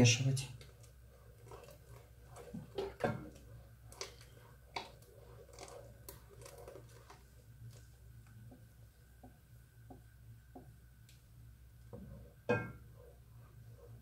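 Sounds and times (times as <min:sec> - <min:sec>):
faint steady hum: 0:00.0 - 0:14.0
mixture being poured: 0:00.5 - 0:09.3
spatula scraping in a pan: 0:00.6 - 0:07.6.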